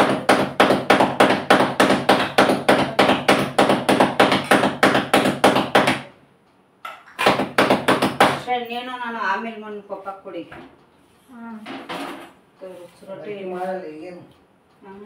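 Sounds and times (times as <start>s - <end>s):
palms patting dough: 0.0s - 6.2s, 6.8s - 8.6s.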